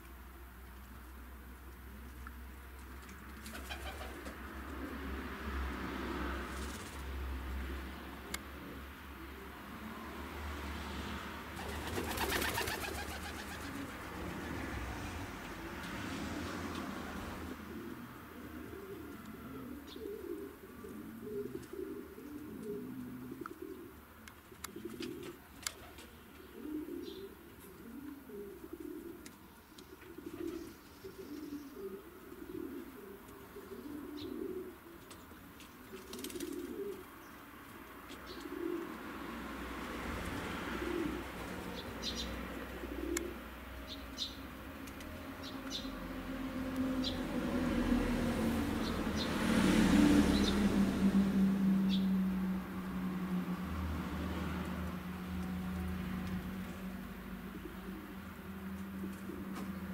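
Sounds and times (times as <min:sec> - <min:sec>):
pigeon cooing: 0:03.5 - 0:05.3, 0:11.6 - 0:14.7, 0:16.3 - 0:29.3, 0:30.0 - 0:35.0, 0:35.9 - 0:37.2, 0:38.3 - 0:39.0, 0:40.4 - 0:43.6, 0:57.4 - 0:59.9
small birds chirping: 0:29.2 - 0:38.6, 0:41.6 - 0:46.0.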